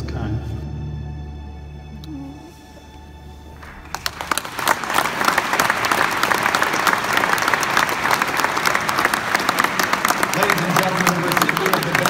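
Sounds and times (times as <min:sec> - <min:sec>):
audience applause: 0:03.5 - 0:12.0.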